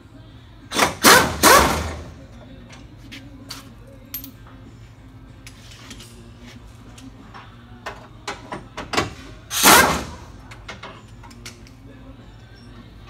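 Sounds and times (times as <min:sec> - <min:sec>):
pneumatic air ratchet: 0:00.7 - 0:02.1, 0:09.0 - 0:10.4.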